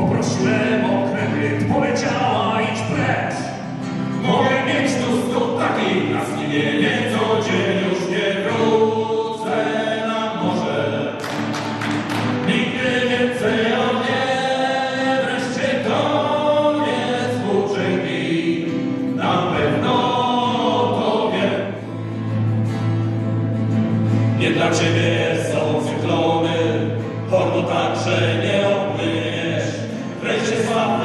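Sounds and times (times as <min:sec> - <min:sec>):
men singing together: 0:00.0 - 0:03.6, 0:04.2 - 0:22.0, 0:24.3 - 0:31.0
acoustic guitar: 0:00.0 - 0:31.0.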